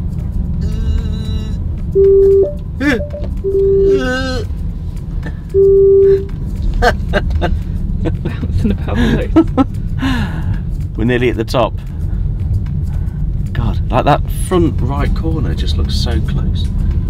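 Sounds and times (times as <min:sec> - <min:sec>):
low road rumble: 0:00.0 - 0:17.0
parking sensor beeps: 0:02.0 - 0:04.1, 0:05.5 - 0:06.3.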